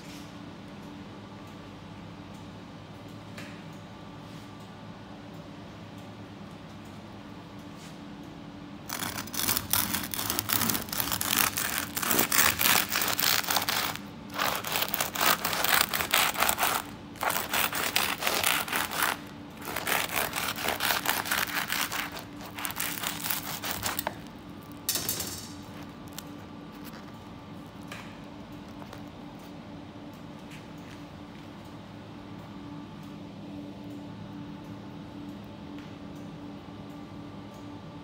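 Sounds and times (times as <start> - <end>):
knife sawing through crunchy crust: 8.9 - 24.7.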